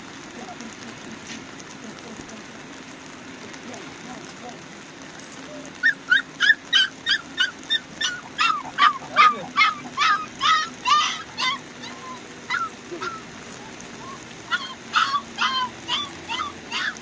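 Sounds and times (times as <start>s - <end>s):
animal high-pitched yelps: 5.6s - 17.0s.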